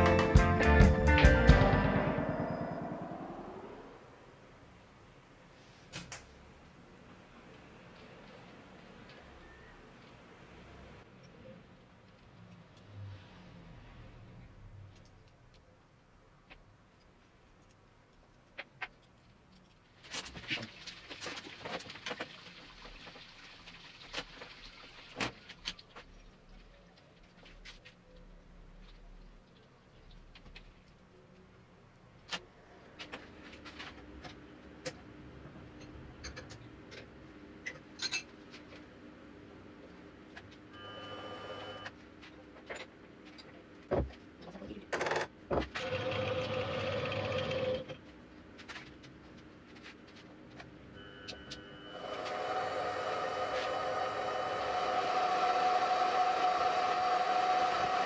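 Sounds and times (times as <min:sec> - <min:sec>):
steady noise: 0:00.0 - 0:05.4
milling machine motor whirring: 0:51.9 - 0:58.0.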